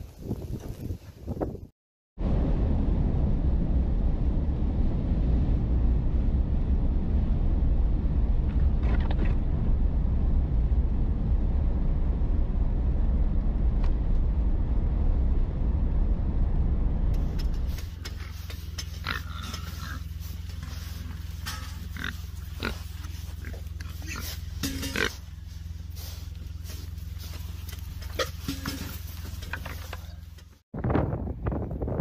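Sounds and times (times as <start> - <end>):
vehicle driving on snowy road: 2.2 - 30.7
rustling: 17.2 - 30.6
pig grunt: 19.0 - 20.1, 21.8 - 25.2.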